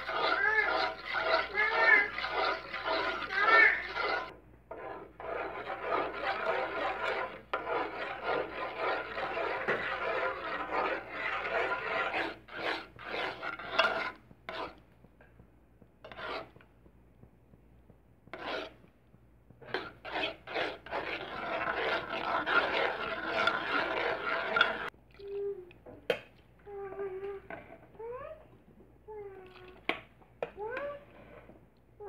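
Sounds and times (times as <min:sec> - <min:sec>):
spatula scraping a wok: 0:00.0 - 0:14.8, 0:16.0 - 0:16.7, 0:18.2 - 0:18.9, 0:19.6 - 0:25.0, 0:31.0 - 0:31.5.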